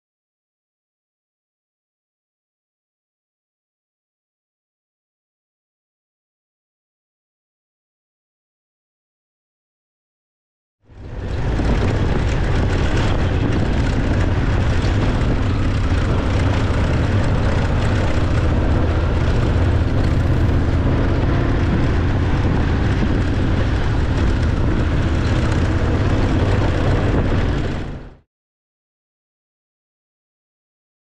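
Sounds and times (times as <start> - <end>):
motorcycle engine running: 10.9 - 28.2
wind rush on microphone: 10.9 - 28.2.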